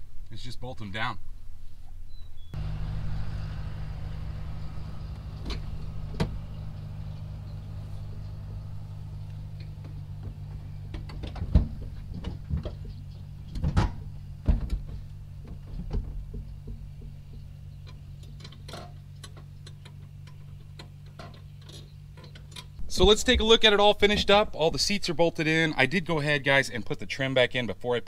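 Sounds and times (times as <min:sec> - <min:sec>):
steady low hum: 0:02.5 - 0:26.9
knocks and clunks of seats: 0:02.6 - 0:17.5.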